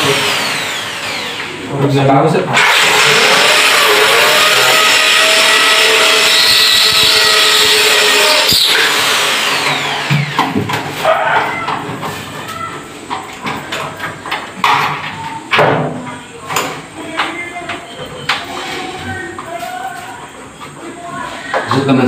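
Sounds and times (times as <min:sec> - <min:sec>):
power drill whining: 0:00.0 - 0:01.7, 0:02.5 - 0:10.6.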